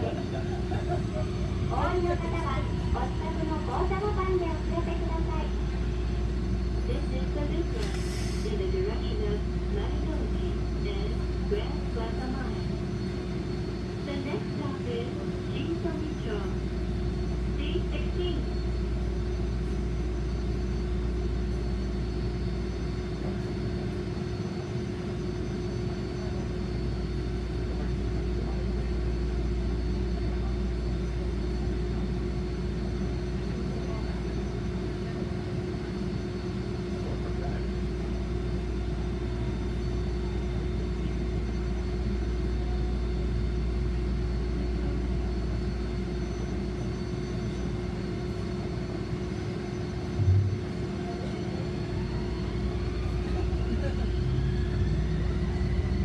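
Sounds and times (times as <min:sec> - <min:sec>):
tram equipment humming: 0:00.0 - 0:56.0.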